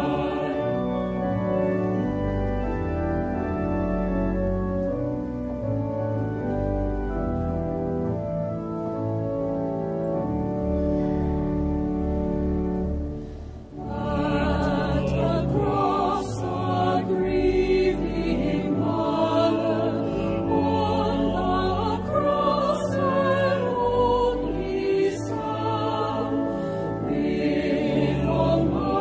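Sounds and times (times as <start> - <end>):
choir singing a hymn: 0.0 - 3.6, 13.7 - 29.0
organ holding a chord: 0.0 - 29.0.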